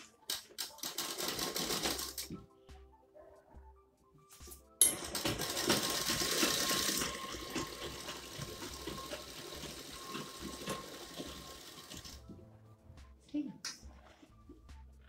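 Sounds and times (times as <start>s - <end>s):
sewing machine stitching: 0.5s - 2.3s, 4.9s - 12.2s.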